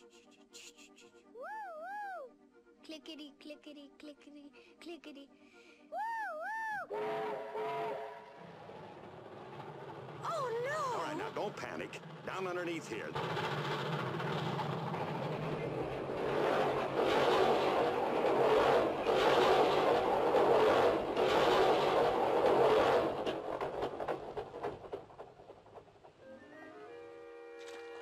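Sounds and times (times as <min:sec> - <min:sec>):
train rolling over wooden bridge: 0:07.6 - 0:28.0.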